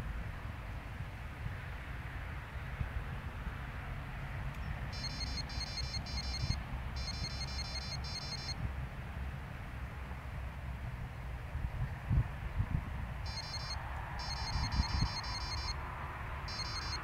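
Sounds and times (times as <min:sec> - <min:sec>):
high-pitched electronic beeping: 0:05.0 - 0:08.6, 0:13.3 - 0:15.8, 0:16.5 - 0:17.0
wind rumbling on microphone: 0:08.6 - 0:17.0.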